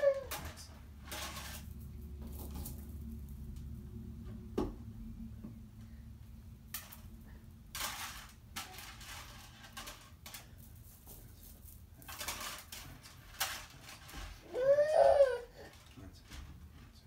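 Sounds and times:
plastic beads clattering on plastic: 0.0 - 3.8, 6.6 - 16.5.

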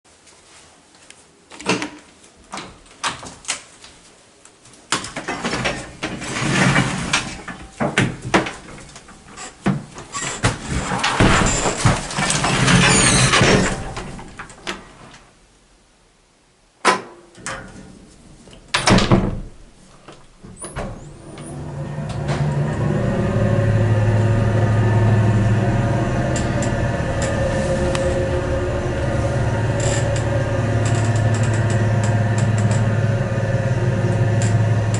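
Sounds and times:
elevator door and gate clicks: 10.2 - 14.8, 25.5 - 34.9
elevator motor humming: 20.5 - 34.9.

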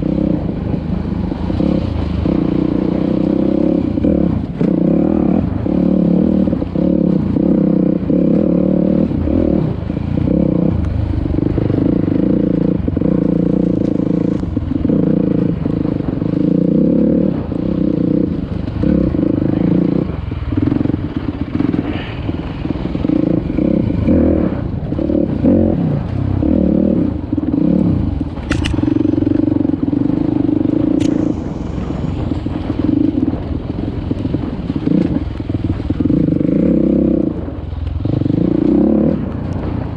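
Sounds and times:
dirt bike engine revving: 0.0 - 39.9
sharp clicks: 28.3 - 29.1, 30.9 - 31.5.

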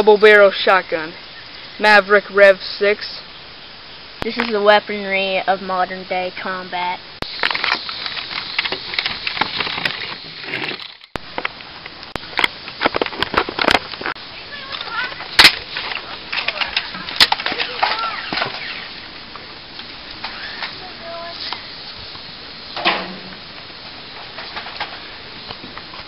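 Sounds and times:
sharp cracks: 7.2 - 20.9, 22.7 - 25.9
plastic toy blasters clattering: 14.7 - 18.8.

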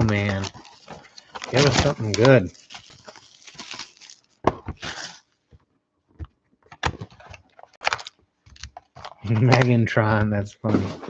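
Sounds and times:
packaging rustling and crinkling: 0.0 - 5.4, 6.8 - 9.8.

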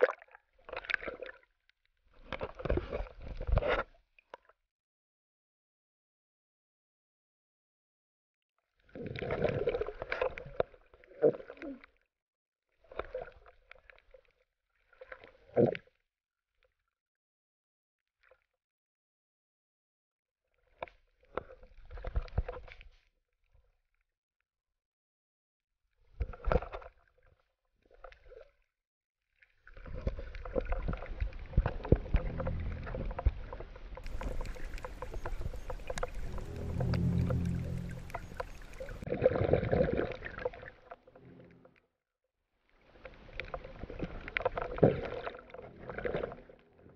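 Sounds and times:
muffled underwater swishes: 29.9 - 41.7
muffled water sloshing: 29.9 - 41.7.

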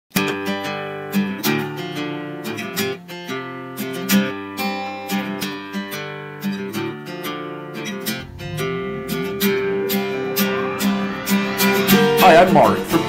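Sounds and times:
instrumental guitar music: 0.2 - 13.0.

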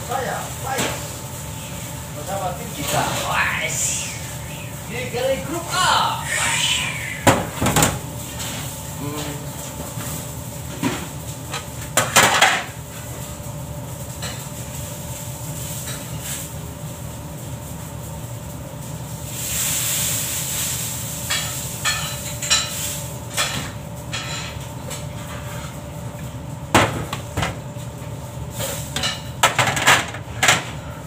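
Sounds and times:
steady machine hum: 0.0 - 31.0.

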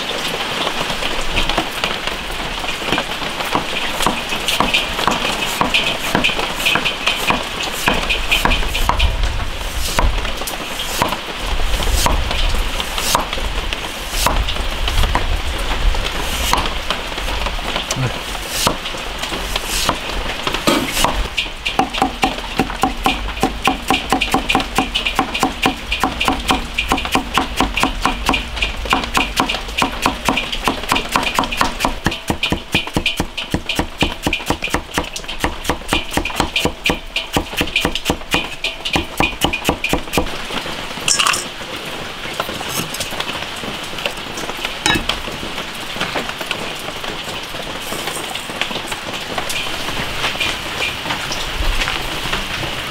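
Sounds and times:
cleaver chopping on wooden block: 4.0 - 9.1, 10.9 - 11.2, 11.9 - 12.3, 13.0 - 13.4, 14.2 - 14.4, 16.4 - 16.7, 18.0 - 18.8, 20.6 - 21.2, 21.8 - 40.3.

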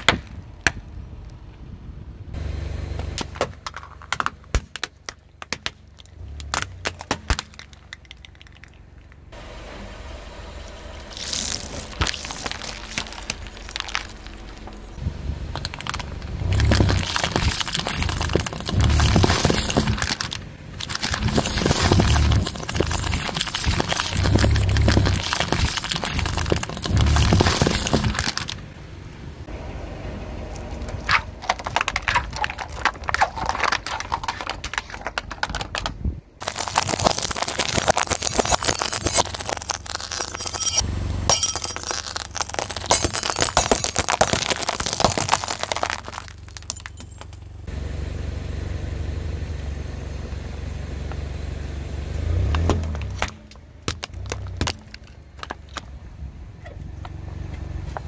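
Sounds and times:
car low rumble: 0.0 - 58.0
sharp cracks: 3.0 - 9.3, 30.8 - 47.5
glass crunching and shattering: 11.1 - 28.6, 31.1 - 35.6, 36.4 - 47.7
tyre crackling over objects: 11.1 - 28.6, 30.6 - 40.8, 41.4 - 47.3.

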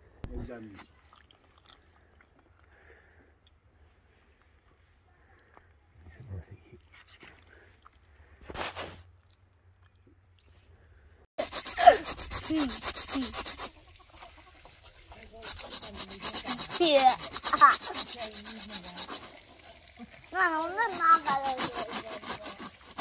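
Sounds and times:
knife scraping tripe: 11.4 - 13.9, 14.8 - 19.5, 20.4 - 23.0.

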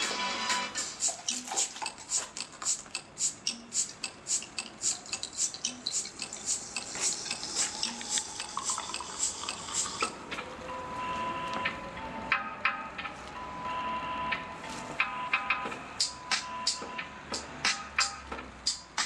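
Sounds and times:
sharp rhythmic clicks: 0.8 - 10.2, 14.3 - 19.0.

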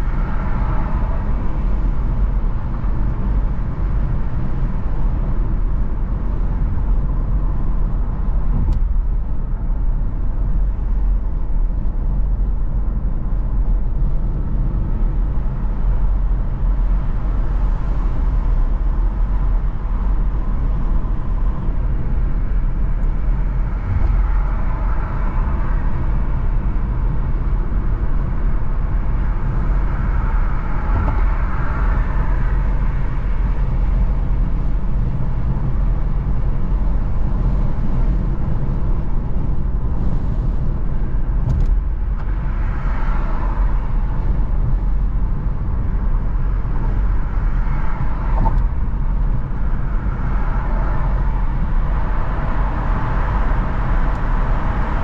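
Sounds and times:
car engine and road noise: 0.0 - 55.0
traffic passing: 14.5 - 55.0.

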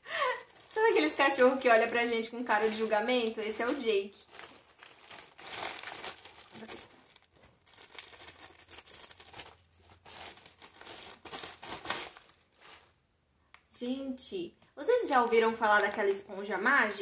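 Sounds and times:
plastic bag tearing and crinkling: 0.1 - 13.0
scissors cutting plastic bag: 0.4 - 12.4.

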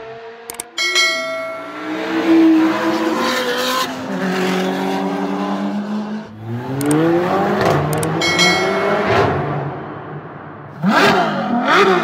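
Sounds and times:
race car engine revving: 1.6 - 12.0.

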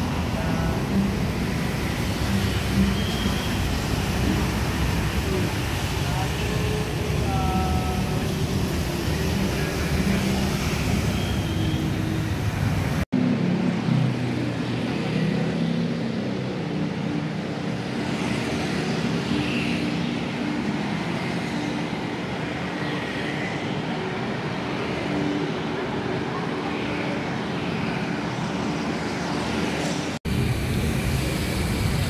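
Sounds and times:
passing car traffic: 0.0 - 32.0.

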